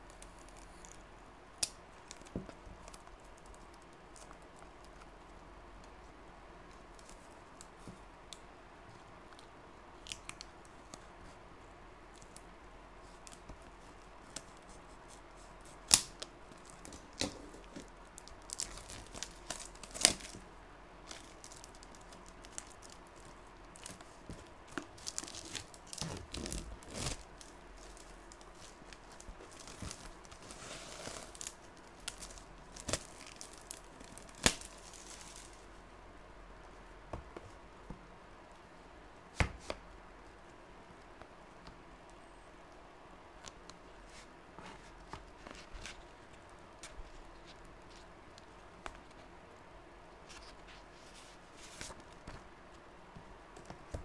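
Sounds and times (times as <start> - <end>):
plastic packaging crinkling: 14.2 - 35.7.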